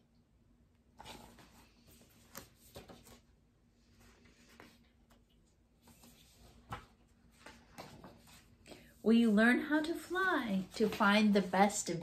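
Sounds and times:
book pages turning with taps: 1.0 - 3.3, 4.4 - 8.8
paper rustling: 1.0 - 3.3.

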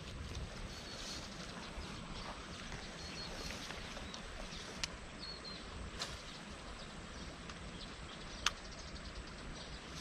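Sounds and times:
outdoor background hiss: 0.0 - 10.0
sharp clicks: 8.4 - 8.7.

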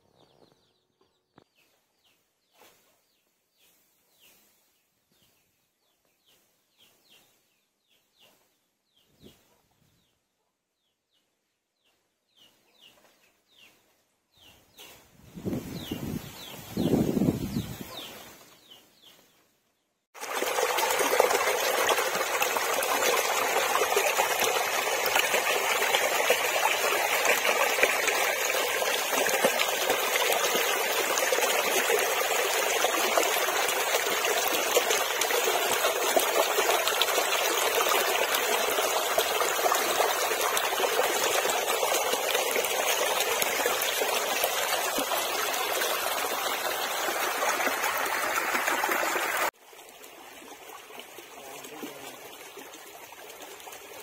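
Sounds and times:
shallow water trickling: 20.2 - 54.0.

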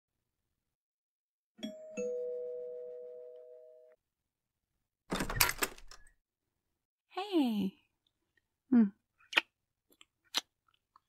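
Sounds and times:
two-tone doorbell chime: 1.6 - 4.0.

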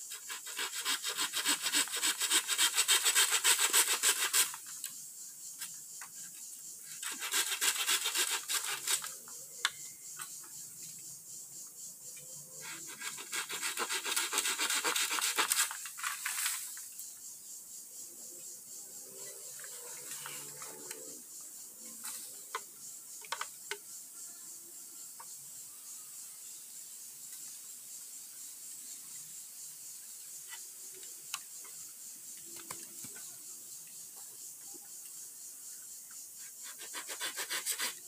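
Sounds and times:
hand saw cutting bamboo: 0.1 - 4.6, 6.9 - 9.1, 12.6 - 15.9, 36.6 - 38.0.

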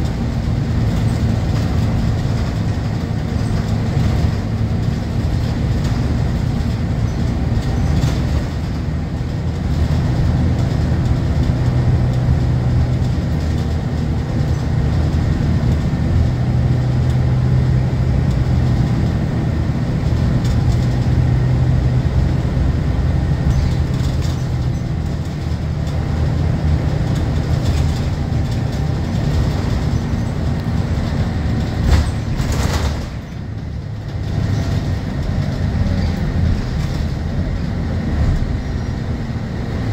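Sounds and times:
bus diesel engine humming: 0.0 - 39.9.

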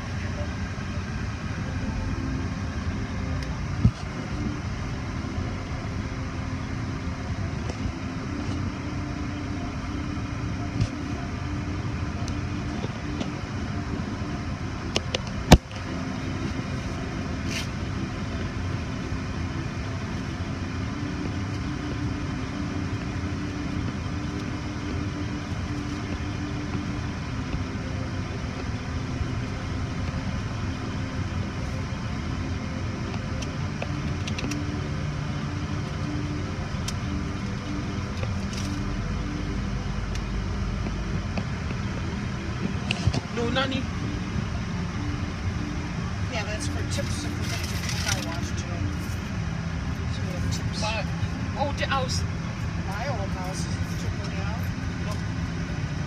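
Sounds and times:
car engine idling hum: 0.0 - 56.0.

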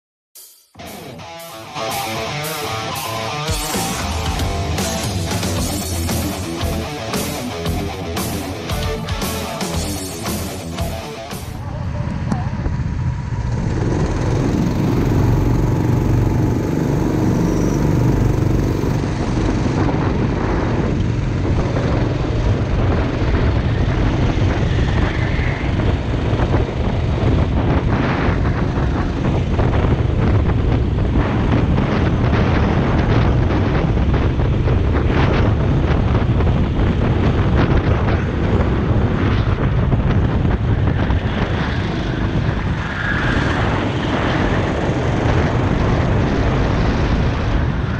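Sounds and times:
go-kart engine running hard: 11.5 - 47.9.

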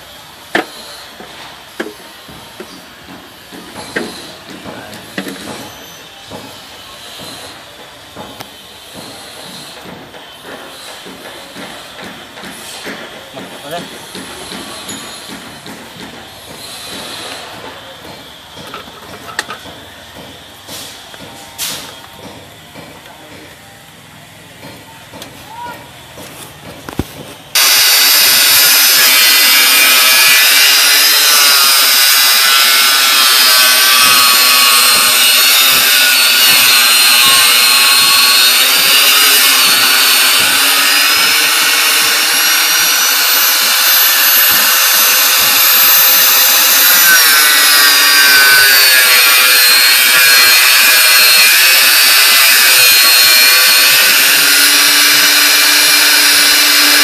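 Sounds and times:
power tool whining: 26.9 - 57.0.

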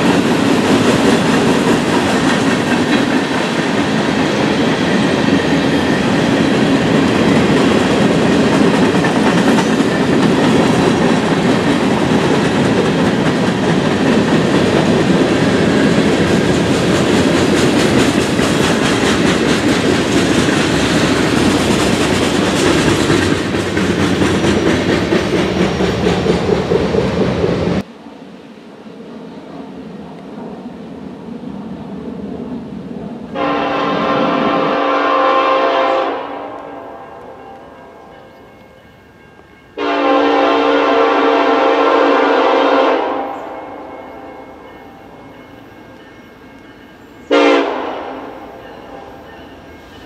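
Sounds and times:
freight train rumbling past: 0.0 - 50.0
wheels clattering over rail joints: 15.8 - 27.3.

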